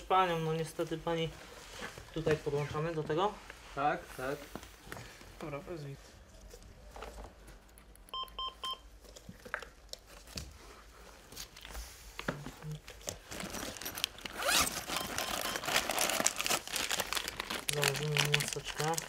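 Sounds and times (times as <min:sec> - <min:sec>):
monitor beeps: 0:08.1 - 0:08.9, 0:15.0 - 0:15.6
plastic packaging rustling: 0:12.9 - 0:19.0.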